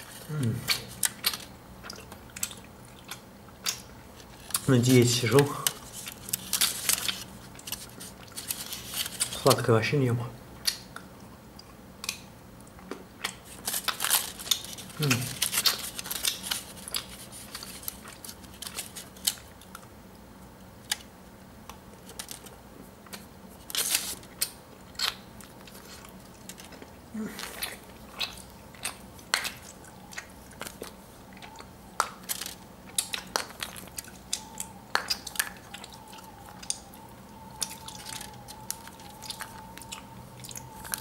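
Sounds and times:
foil wrapper rustling: 4.1 - 9.7, 13.4 - 19.7, 23.5 - 26.7, 31.9 - 41.0.

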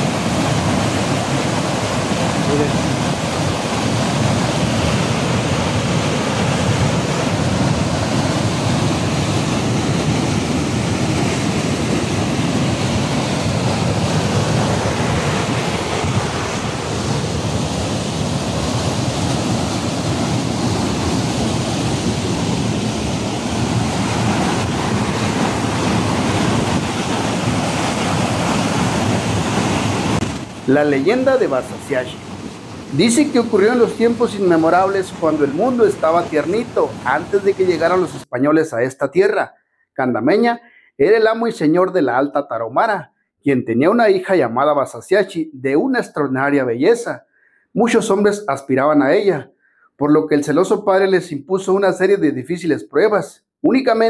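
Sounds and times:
waterfall rushing: 0.0 - 38.2.

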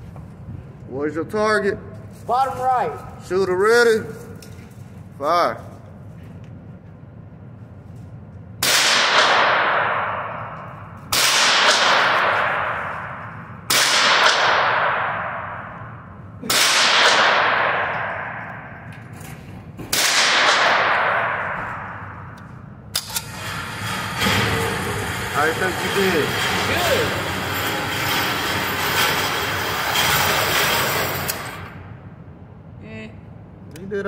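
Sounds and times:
rifle shots echoing indoors: 8.6 - 19.0, 19.9 - 23.9.

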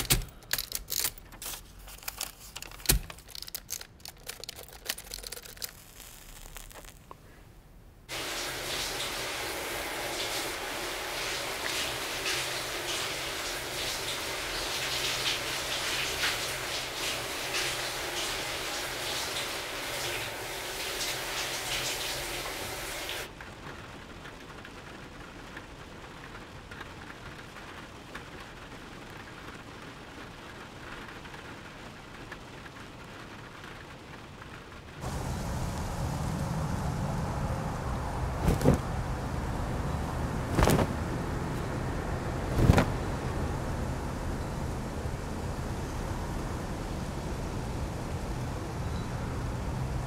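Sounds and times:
faint rain patter: 0.0 - 50.0
running water hiss: 8.1 - 23.3, 35.0 - 40.2
wind-like rumble: 34.7 - 50.0
sharp flapping snap: 38.4 - 38.8, 40.5 - 40.9, 42.5 - 42.9.

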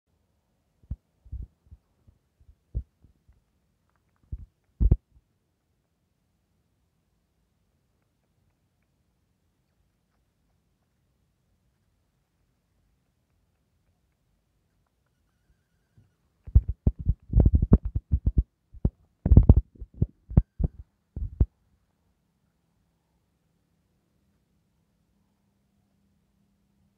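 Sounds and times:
soft low thumps: 0.8 - 3.1, 4.3 - 5.0, 16.5 - 21.5.

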